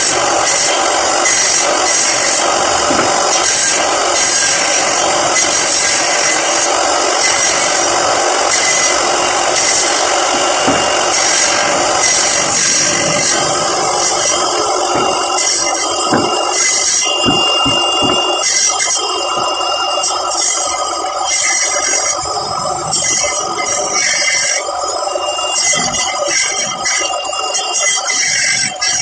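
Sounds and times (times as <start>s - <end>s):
wood rasping and scraping: 0.0s - 22.3s.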